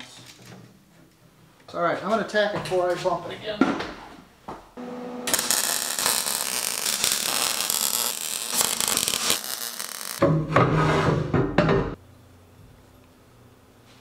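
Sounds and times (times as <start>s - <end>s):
welder arc crackling: 5.3s - 10.3s.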